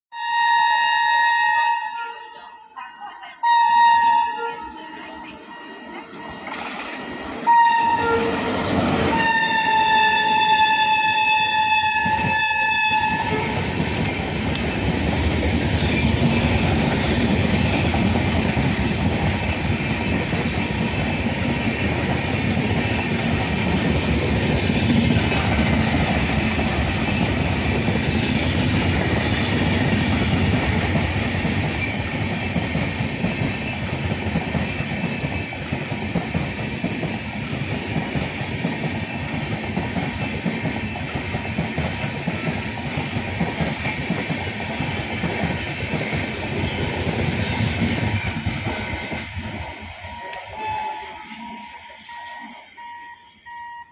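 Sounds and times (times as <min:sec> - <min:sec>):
locomotive horn: 0:00.1 - 0:02.5, 0:03.4 - 0:05.6, 0:07.4 - 0:13.7, 0:49.9 - 0:53.9
train coaches rumbling and rattling: 0:04.6 - 0:53.4.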